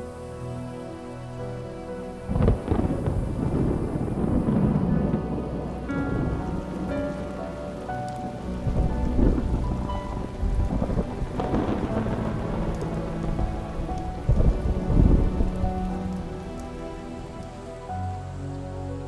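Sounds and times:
soft background music: 0.0 - 19.0
steady rain: 0.0 - 19.0
thunder rolling: 2.2 - 16.9.

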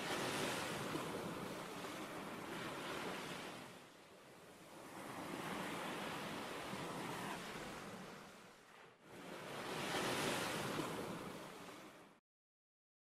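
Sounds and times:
rushing water: 0.0 - 3.5.

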